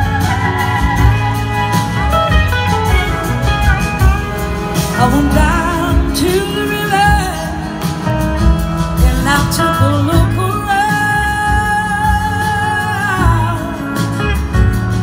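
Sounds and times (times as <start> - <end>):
wavering lead melody: 0.0 - 14.9
live soul-blues band: 0.0 - 15.0.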